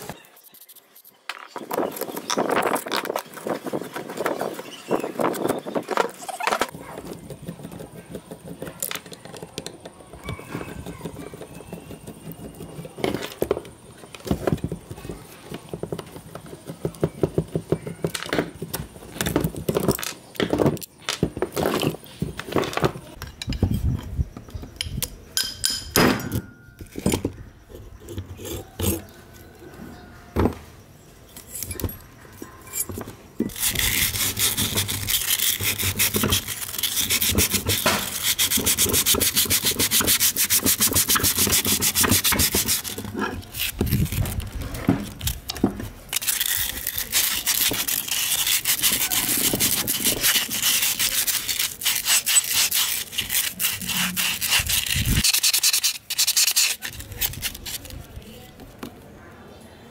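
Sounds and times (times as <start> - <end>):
sandpaper scraping metal: 0.0 - 1.2, 33.5 - 45.4, 46.1 - 58.0.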